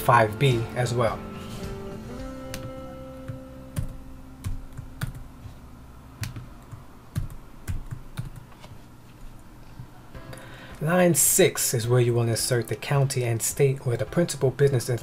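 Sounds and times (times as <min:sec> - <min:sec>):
computer keyboard keystrokes: 0:03.8 - 0:05.2, 0:06.2 - 0:08.5.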